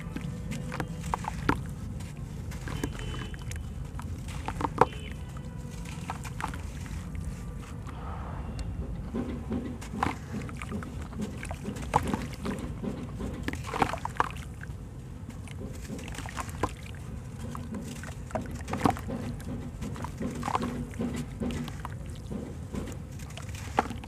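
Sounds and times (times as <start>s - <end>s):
crumbs and water splashing: 0.0s - 8.0s, 9.5s - 24.0s
block crumbling by hand: 3.9s - 5.1s.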